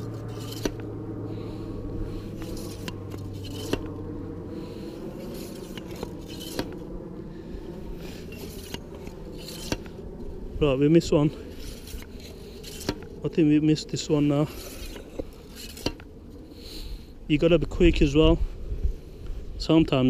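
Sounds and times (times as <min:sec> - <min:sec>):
bait pump scraping wet sand: 0:00.0 - 0:00.8, 0:02.2 - 0:03.9, 0:04.6 - 0:06.8, 0:08.0 - 0:10.0, 0:11.4 - 0:13.4
low steady hum: 0:00.0 - 0:20.0.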